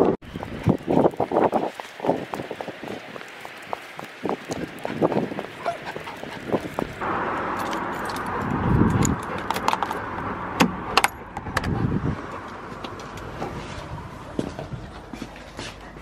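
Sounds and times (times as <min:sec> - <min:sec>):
passing traffic: 0:00.0 - 0:16.0
keys jangling: 0:07.6 - 0:10.0.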